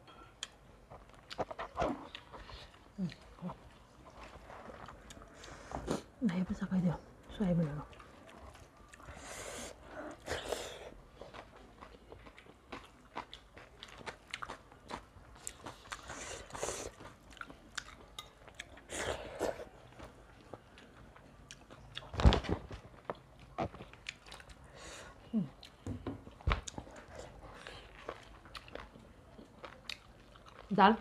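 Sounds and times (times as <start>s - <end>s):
wet chewing and mouth smacks: 7.2s - 9.3s, 11.2s - 22.2s, 22.9s - 24.7s, 25.4s - 30.7s.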